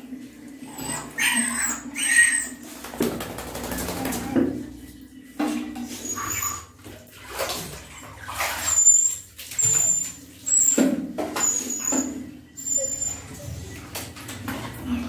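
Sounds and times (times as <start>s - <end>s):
small dog whining: 0.8s - 2.6s, 12.6s - 13.6s.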